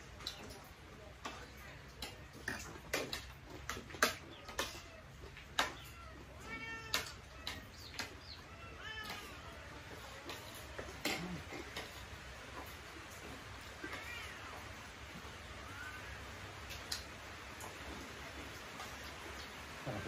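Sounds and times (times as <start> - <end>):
cat meowing: 5.8 - 7.6, 8.4 - 9.7, 13.8 - 14.6.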